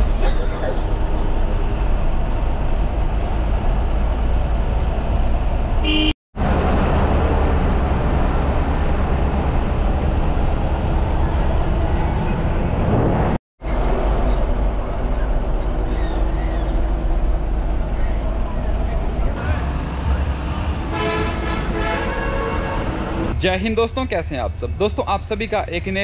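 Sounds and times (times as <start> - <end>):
bus engine and road rumble: 0.0 - 26.0
short horn toot: 5.8 - 6.2.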